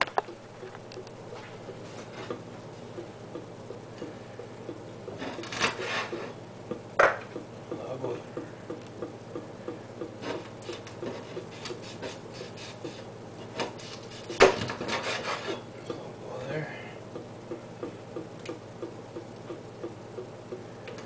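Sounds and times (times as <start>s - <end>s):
meat scraping on board: 5.2s - 6.4s, 10.2s - 15.7s.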